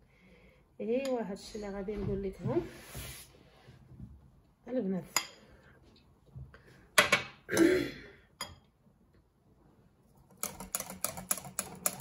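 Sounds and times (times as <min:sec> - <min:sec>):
whisk beating in a glass bowl: 0:10.3 - 0:12.0.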